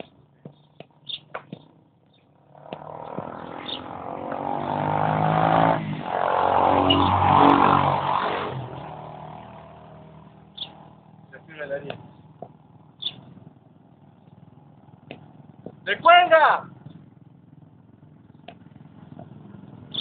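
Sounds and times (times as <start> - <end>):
motorcycle engine passing by: 1.0 - 20.0.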